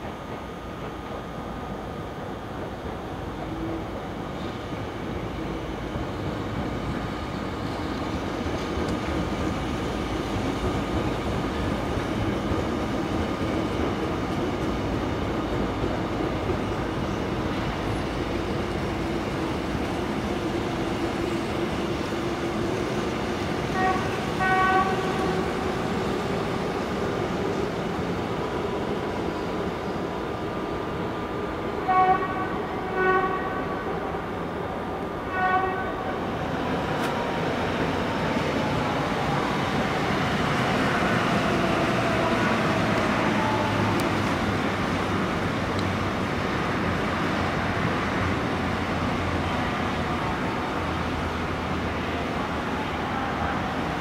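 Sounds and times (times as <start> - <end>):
train wheels rumbling on rails: 0.0 - 54.0
train horn blast: 23.7 - 25.5, 31.8 - 34.3, 35.2 - 36.2, 43.2 - 44.0.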